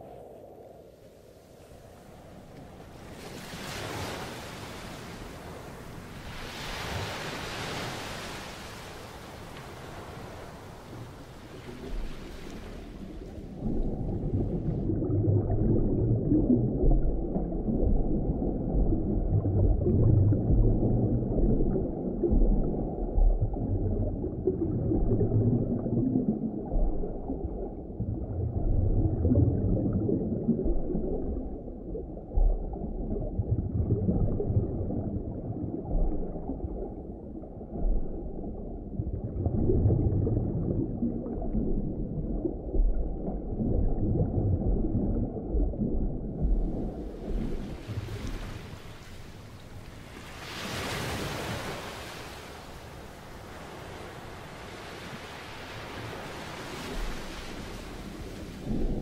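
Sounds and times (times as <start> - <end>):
underwater rumble: 0.0 - 59.0
water gurgling: 9.8 - 54.6, 55.8 - 59.0.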